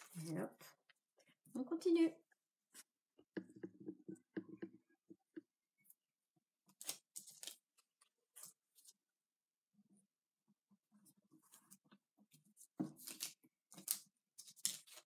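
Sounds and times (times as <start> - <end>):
paper rustling and crinkling: 6.7 - 9.0, 12.5 - 15.0.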